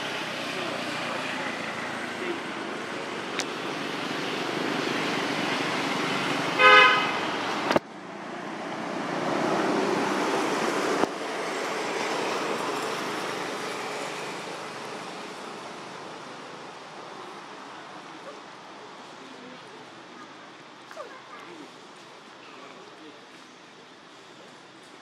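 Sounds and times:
road traffic passing: 0.0 - 25.0
vehicle horn toot: 6.6 - 7.2.

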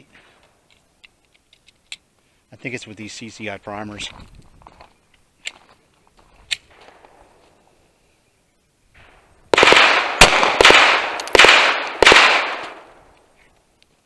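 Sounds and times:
pistol shots with ringing echo: 9.0 - 13.1.

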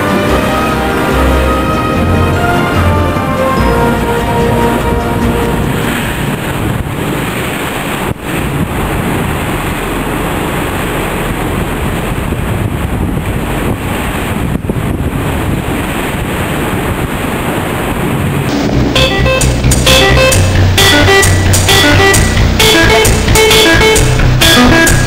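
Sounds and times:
wind buffeting microphone: 0.0 - 19.8
churning sea water: 0.0 - 25.0.

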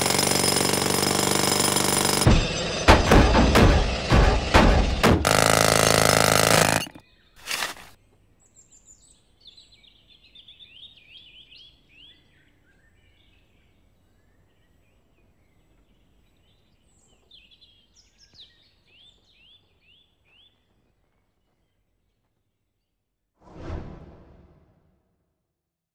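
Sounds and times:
jackhammer running: 0.0 - 7.9.

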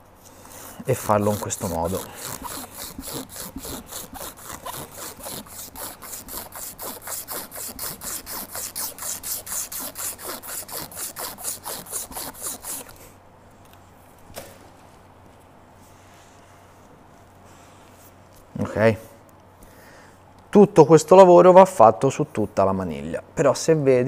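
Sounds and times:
sandpaper rasping on metal: 0.8 - 12.9.

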